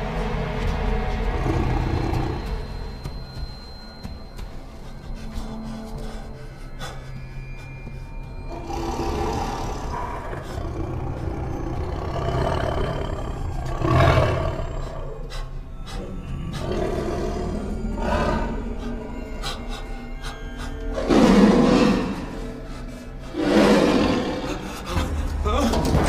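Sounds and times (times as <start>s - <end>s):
background music: 0.0s - 26.0s
lions roaring: 1.3s - 2.6s, 8.5s - 15.2s, 16.2s - 19.0s, 20.9s - 22.5s, 23.3s - 24.7s.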